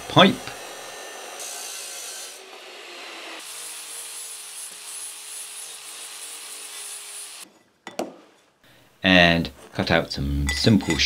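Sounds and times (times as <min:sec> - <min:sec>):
cut-off saw grinding steel pipe: 0:00.0 - 0:07.5.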